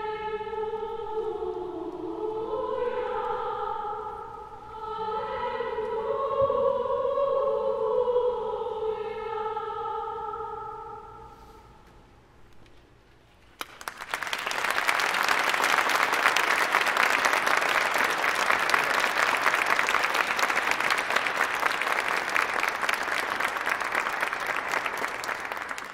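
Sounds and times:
audience applauding: 0:13.6 - 0:25.9.

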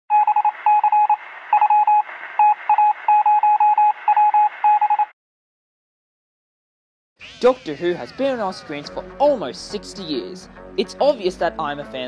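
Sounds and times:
morse code beeping: 0:00.1 - 0:05.1.

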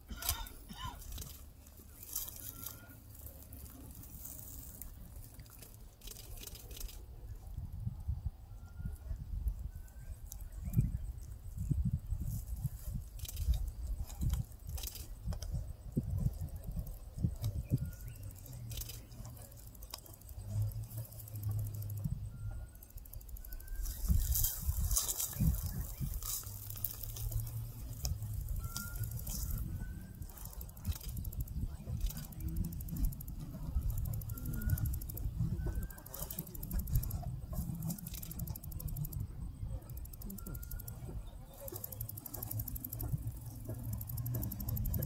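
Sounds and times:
crunching clicks: 0:00.0 - 0:07.1, 0:12.5 - 0:45.0
low steady rumble: 0:00.0 - 0:45.0
cheetah chewing and tearing meat: 0:00.1 - 0:07.1, 0:23.0 - 0:45.0.

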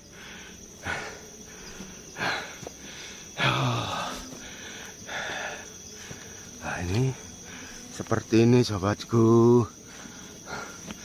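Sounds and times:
person breathing hard: 0:00.0 - 0:06.4, 0:09.8 - 0:11.0
high-pitched insect drone: 0:00.0 - 0:11.0
voiced groan: 0:03.4 - 0:05.7.

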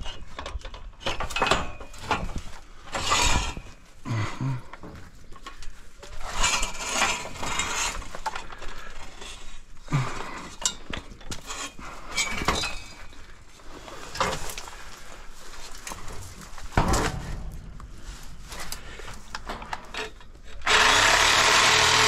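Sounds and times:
scrap metal clattering: 0:00.1 - 0:04.0, 0:06.1 - 0:08.6, 0:10.4 - 0:20.4.

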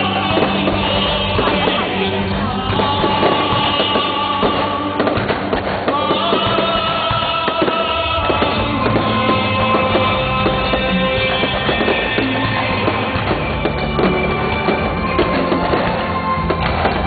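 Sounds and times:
fireworks banging and crackling: 0:00.0 - 0:17.0
loud music with held notes: 0:00.0 - 0:17.0.

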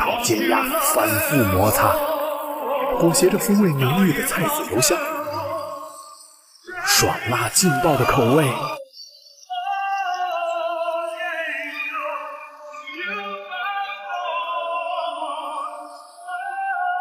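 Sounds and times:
sustained accompaniment: 0:00.0 - 0:06.0
high wordless singing voice: 0:00.0 - 0:08.9, 0:09.5 - 0:17.0.

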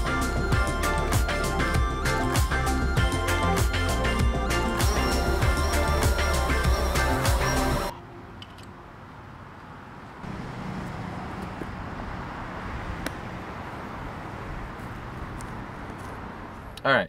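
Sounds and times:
outdoor background hum and hiss: 0:07.9 - 0:17.0.

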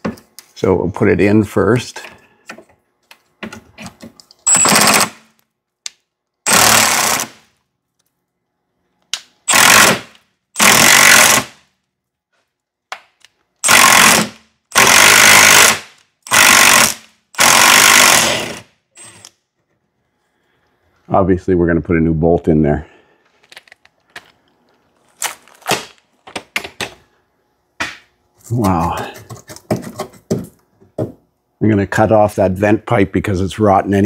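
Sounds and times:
impact wrench hammering: 0:13.6 - 0:19.2.

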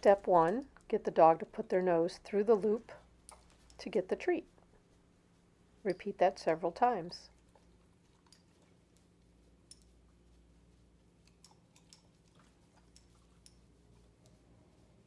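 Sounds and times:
dog chewing and licking: 0:07.3 - 0:10.3, 0:11.1 - 0:14.4.

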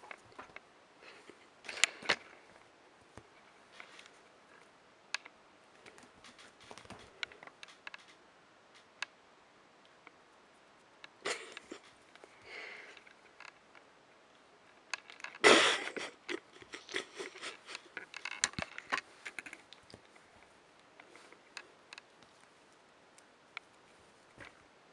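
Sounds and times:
kitten scratches and clicks: 0:05.2 - 0:09.2.

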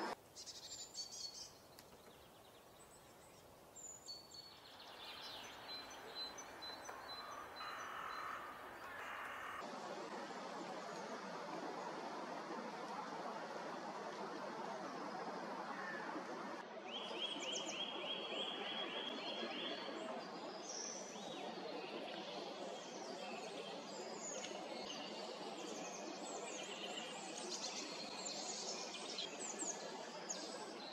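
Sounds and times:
birds chirping: 0:00.0 - 0:09.6
outdoor background hiss: 0:00.0 - 0:30.9.

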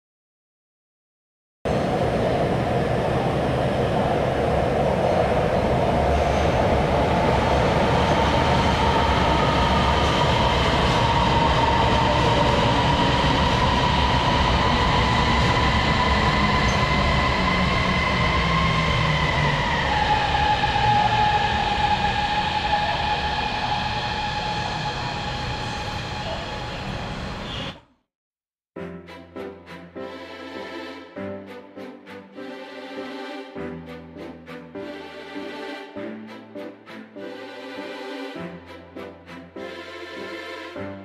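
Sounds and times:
train wheels rumbling on rail: 0:01.7 - 0:27.8.

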